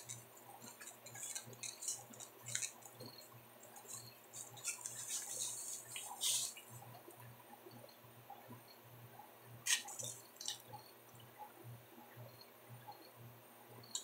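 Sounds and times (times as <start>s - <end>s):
person chewing pizza: 0.0s - 6.7s.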